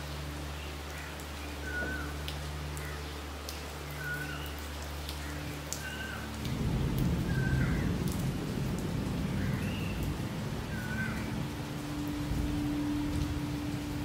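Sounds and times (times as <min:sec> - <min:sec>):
rain on leaves: 0:00.0 - 0:14.0
thunder rumble: 0:06.5 - 0:14.0.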